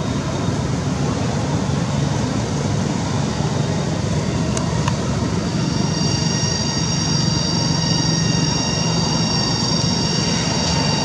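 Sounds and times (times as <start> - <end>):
cicadas droning: 0.0 - 11.0
high steady whine: 0.0 - 11.0.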